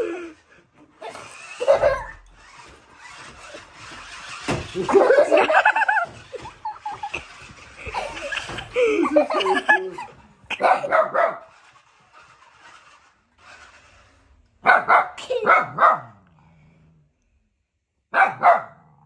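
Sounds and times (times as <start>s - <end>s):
puppy barking and yipping: 10.5s - 11.6s, 14.6s - 16.1s, 18.1s - 18.8s.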